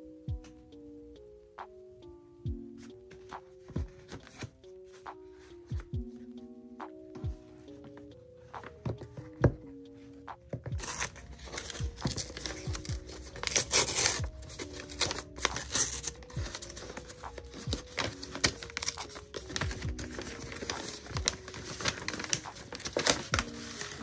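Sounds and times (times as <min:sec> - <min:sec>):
soft music with plucked notes: 0:00.0 - 0:24.0
mailer bag crinkling and rustling: 0:10.8 - 0:24.0.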